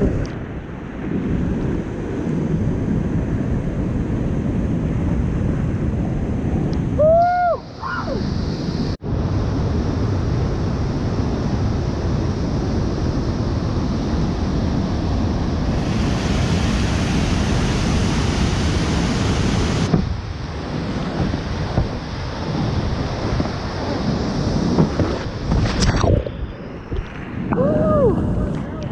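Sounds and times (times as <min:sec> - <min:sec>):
whitewater rapids rushing: 0:15.6 - 0:20.0.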